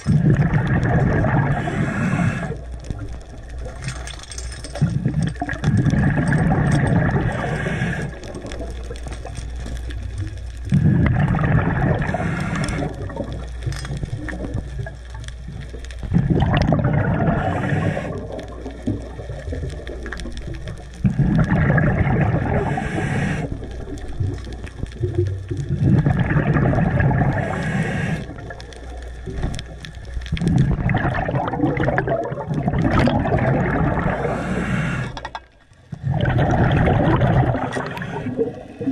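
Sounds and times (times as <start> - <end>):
exhaled bubbles: 0.0 - 38.9
diver breathing through regulator: 1.3 - 2.7, 6.2 - 8.6, 11.9 - 13.1, 17.2 - 18.4, 22.4 - 23.6, 27.1 - 28.5, 33.9 - 35.3, 37.4 - 38.9.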